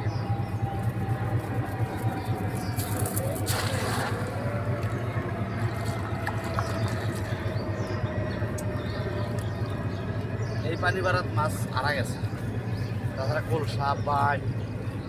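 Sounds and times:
low engine hum: 0.0s - 15.0s
net splashing into water: 3.1s - 4.5s.

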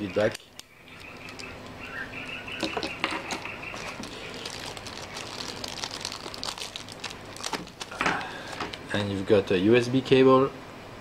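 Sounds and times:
plastic bag crinkling: 0.3s - 1.7s, 2.6s - 9.1s.

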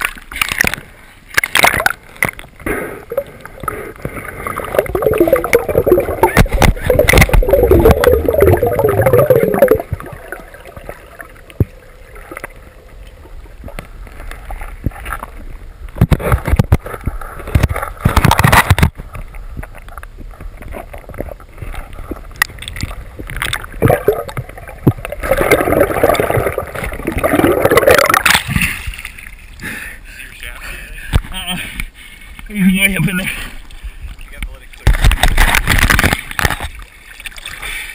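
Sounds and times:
water rushing and bubbling: 0.0s - 29.6s.

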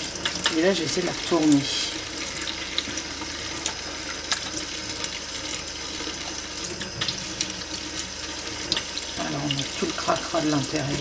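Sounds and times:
tap water running into sink: 0.0s - 11.0s
small clicks and splashes: 3.6s - 10.2s.

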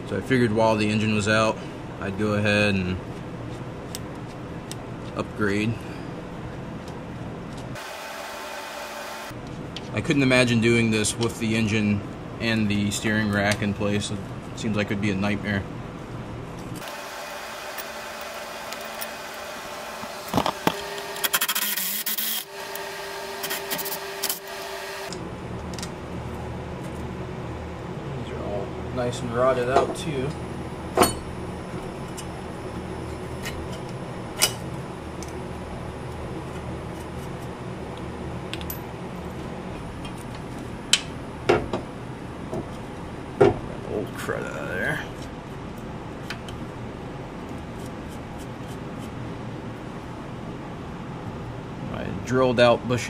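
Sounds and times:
low steady hum: 0.0s - 53.0s
power driver motor whirr: 16.8s - 25.2s.

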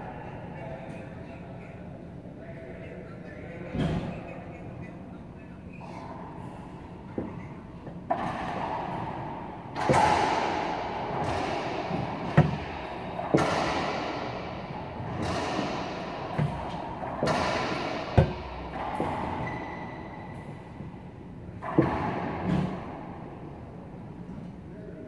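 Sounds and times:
racquetball hits echoing: 6.0s - 24.3s.

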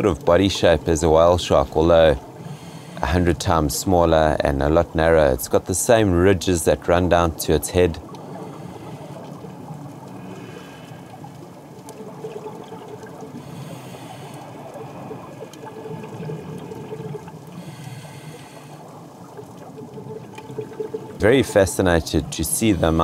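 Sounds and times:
exhaled air bubbling underwater: 0.6s - 5.4s, 7.3s - 23.0s
watery hiss: 13.3s - 19.0s.

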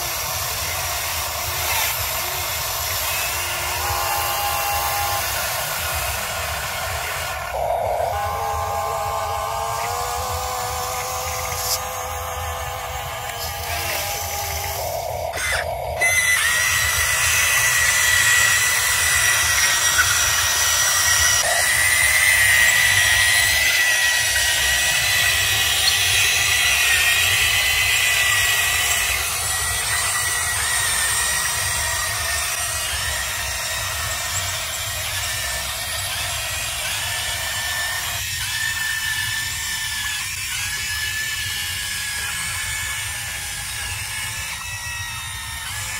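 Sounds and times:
hydraulic pump whining: 0.0s - 45.9s.

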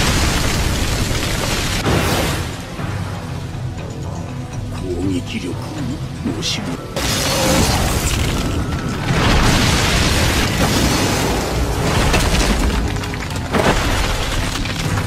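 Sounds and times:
crashing debris: 0.0s - 3.0s, 7.0s - 15.0s.

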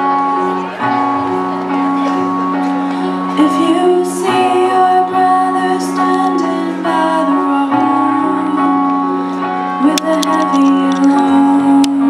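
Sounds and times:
person singing: 3.0s - 12.0s.

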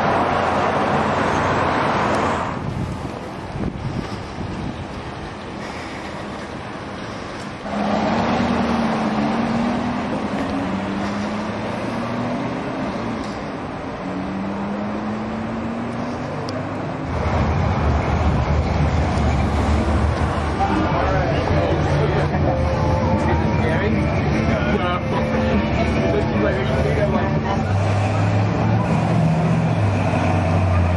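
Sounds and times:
low engine rumble: 0.0s - 30.9s
car engine accelerating hard: 7.6s - 22.6s, 23.3s - 30.9s.

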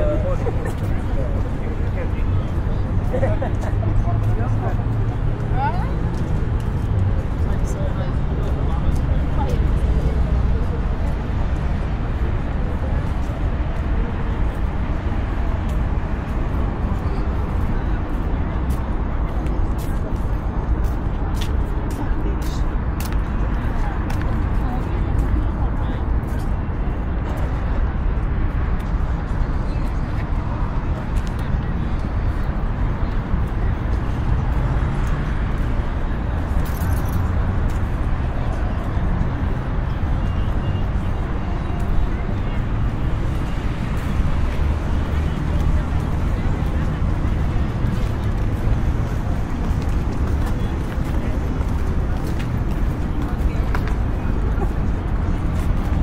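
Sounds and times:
faint murmur of voices: 0.0s - 56.0s
low urban rumble: 0.0s - 56.0s.

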